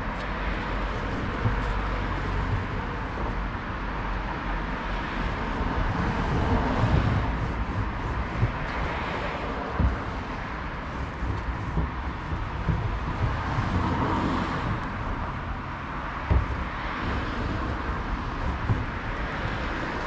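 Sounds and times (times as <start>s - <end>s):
car passing: 0.0s - 20.0s
road traffic: 0.0s - 20.0s
sharp thump: 16.2s - 16.9s.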